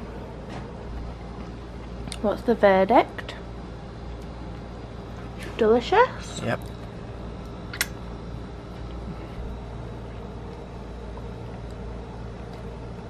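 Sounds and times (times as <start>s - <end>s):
low background hum: 0.0s - 13.0s
sharp click: 7.7s - 8.0s.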